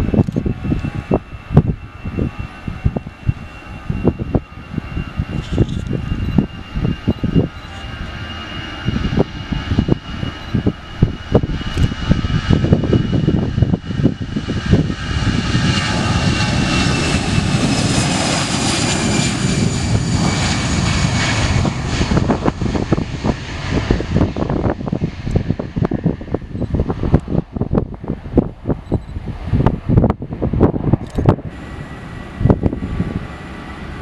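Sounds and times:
high engine whine: 0.0s - 34.0s
jet engines at takeoff thrust: 0.0s - 34.0s
wind thumps on microphone: 8.8s - 17.7s, 19.4s - 31.6s, 32.3s - 33.3s.

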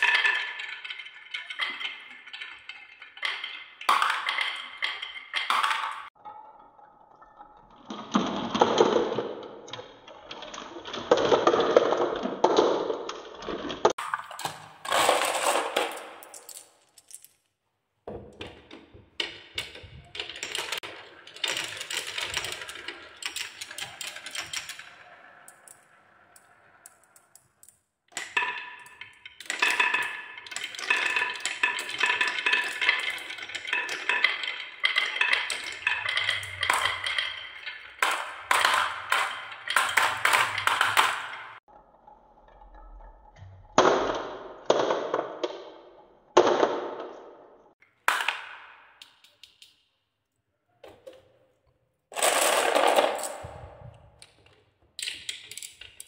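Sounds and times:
marbles clacking: 0.0s - 17.5s, 18.3s - 41.7s, 52.1s - 54.4s, 55.0s - 56.0s
marbles rolling on wooden tracks: 0.0s - 17.5s, 18.1s - 49.8s, 52.1s - 56.0s.

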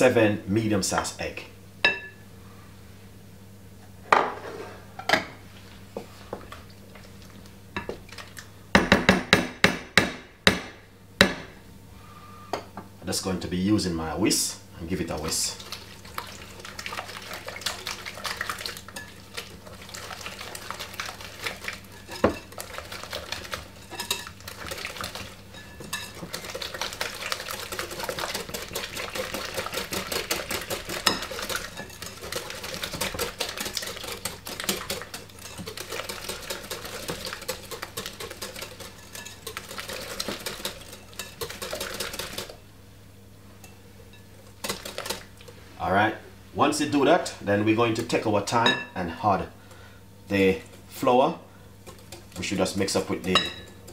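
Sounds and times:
whisk clicking against glass bowl: 20.2s - 42.5s, 51.8s - 53.9s.

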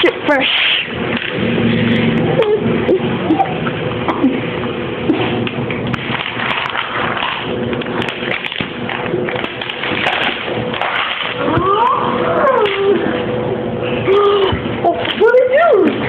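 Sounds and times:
voice whining: 2.2s - 5.4s, 11.3s - 16.0s.

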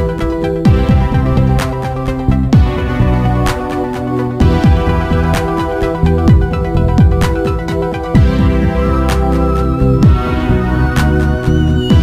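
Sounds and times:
deep pitch-dropping drum hits: 0.0s - 3.8s, 4.4s - 9.1s
music with sustained chords: 0.0s - 12.0s.

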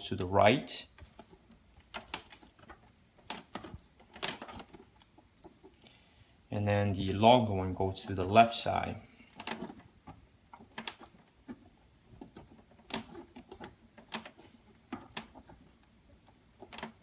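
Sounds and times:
plastic clicks and scrapes: 0.9s - 5.8s, 9.2s - 17.0s.

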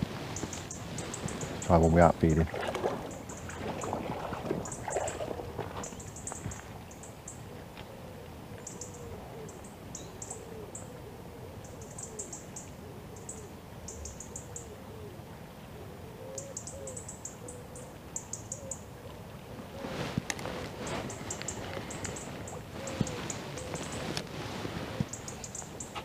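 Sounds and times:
river water flowing: 0.0s - 7.1s
birds chirping: 0.0s - 11.0s, 19.8s - 26.0s
low bird call: 2.5s - 26.0s.

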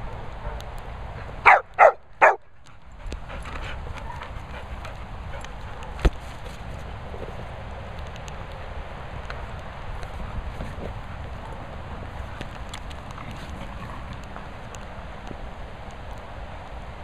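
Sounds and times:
dog barking: 1.4s - 2.4s.

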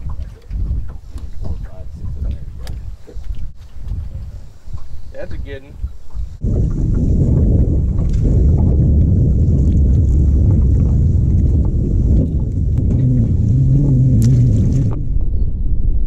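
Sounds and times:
wind buffeting microphone: 0.0s - 16.0s
low hum: 6.4s - 16.0s.

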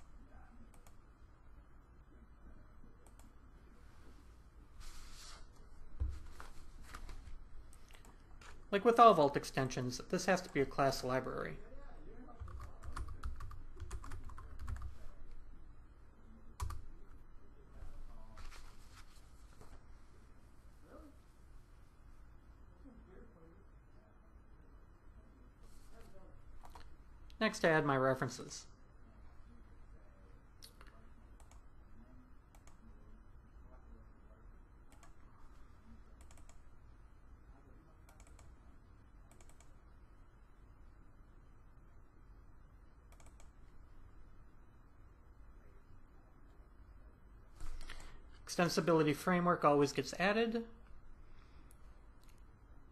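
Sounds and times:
low steady hum: 0.0s - 52.9s
keyboard typing: 12.4s - 15.0s, 16.6s - 16.9s, 26.6s - 26.9s, 34.9s - 35.2s, 36.2s - 36.6s, 38.1s - 38.6s, 39.3s - 39.8s, 43.1s - 43.6s
computer mouse double-clicks: 43.1s - 43.5s.

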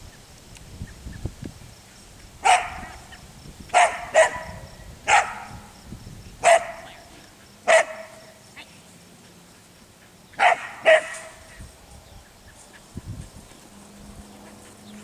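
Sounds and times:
dog barking sharply: 2.4s - 3.0s, 3.7s - 5.6s, 6.4s - 7.1s, 7.7s - 8.3s, 10.4s - 11.4s.

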